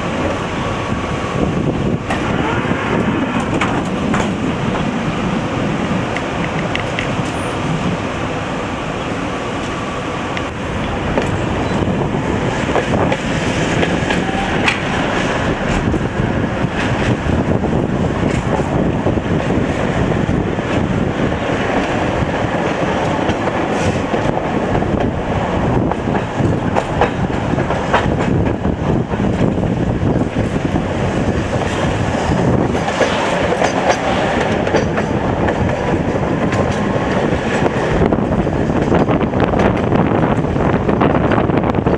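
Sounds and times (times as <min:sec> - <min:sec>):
tram rumbling: 0:00.0 - 0:41.9
wheels clicking over rail joints: 0:02.0 - 0:05.0, 0:06.0 - 0:08.1, 0:09.6 - 0:41.9.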